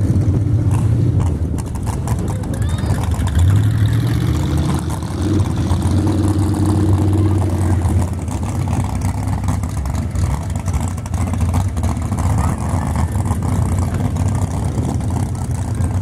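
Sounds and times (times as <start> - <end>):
truck engine droning: 0.0 - 16.0.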